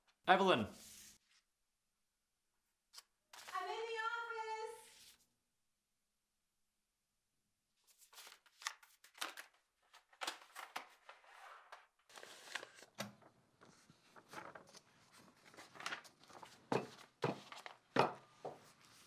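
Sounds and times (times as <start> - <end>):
paper rustling: 2.9 - 3.9, 7.8 - 19.0.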